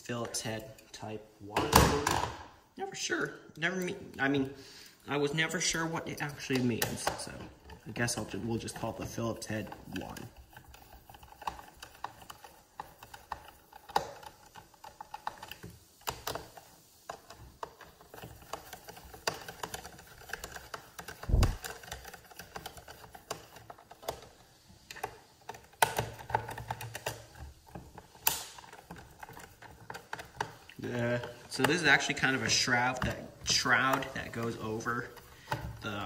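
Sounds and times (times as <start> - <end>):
screwdriver clicking on plastic: 9.8 - 30.7.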